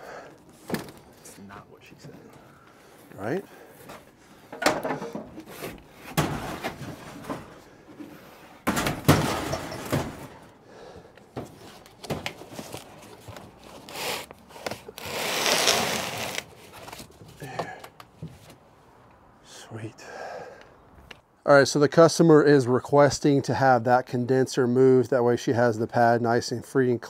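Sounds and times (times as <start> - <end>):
equipment clunks and knocks: 4.5 - 5.4, 8.6 - 10.4
rough noise: 13.8 - 16.5.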